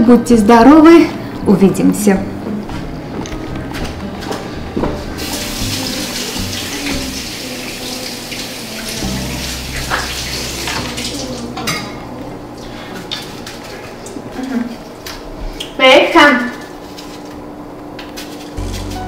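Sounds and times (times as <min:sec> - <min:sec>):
faucet running into sink: 0:05.2 - 0:11.8.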